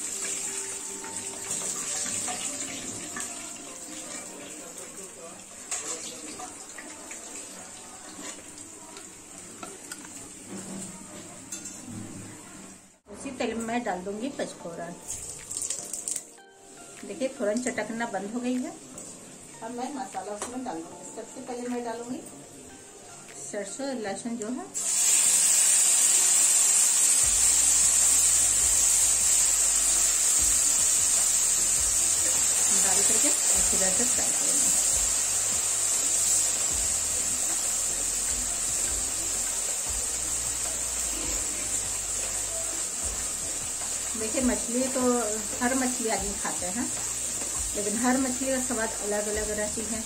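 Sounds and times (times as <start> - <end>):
hot oil sizzling: 0.0 - 10.5, 24.8 - 50.0.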